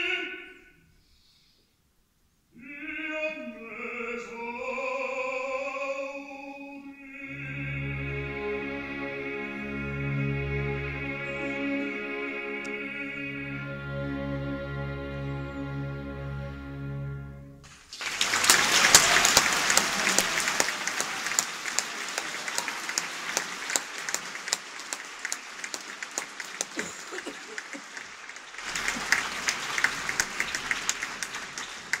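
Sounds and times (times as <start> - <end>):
orchestra chord: 7.5 - 17.7
audience applause: 17.6 - 32.0.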